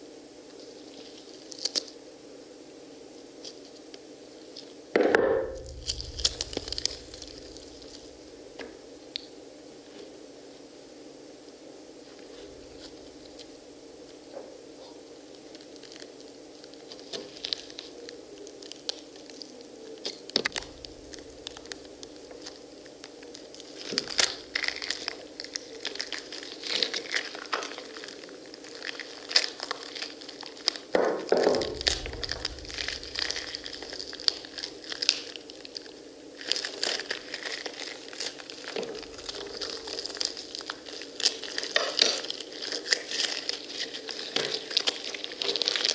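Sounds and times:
low steady hum: 0.0 - 45.9
seeds crackling and squishing: 0.5 - 2.0, 5.4 - 8.4, 15.4 - 45.9
pomegranate rinds cracking and tearing: 5.4 - 8.2, 18.5 - 30.9, 31.5 - 45.9.

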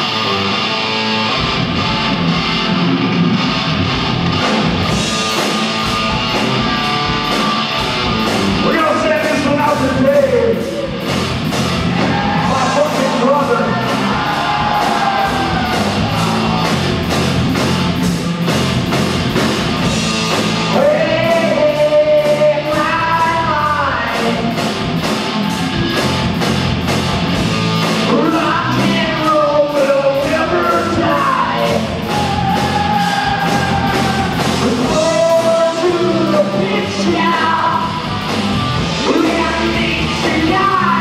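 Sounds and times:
electric guitar: 0.0 - 41.0
drums with cymbal beat: 4.2 - 41.0
man singing: 8.6 - 10.8, 20.7 - 24.5, 28.1 - 38.1, 38.9 - 41.0.

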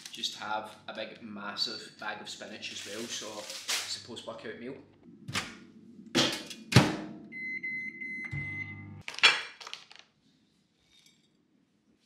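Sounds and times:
long beep: 7.3 - 9.0
microwave oven humming: 7.4 - 9.0.

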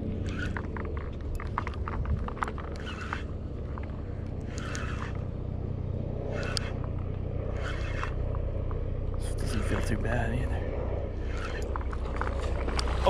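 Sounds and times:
steady low rumble: 0.0 - 13.0
fishing reel cranking: 0.2 - 0.8, 1.4 - 5.3, 6.2 - 8.3, 11.2 - 13.0.

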